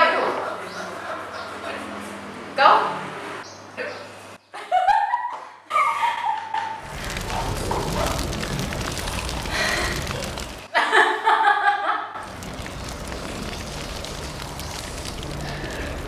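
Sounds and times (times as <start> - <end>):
woman laughing hard: 4.6 - 6.8, 10.7 - 12.2
fire crackling: 6.8 - 10.7, 12.2 - 16.0.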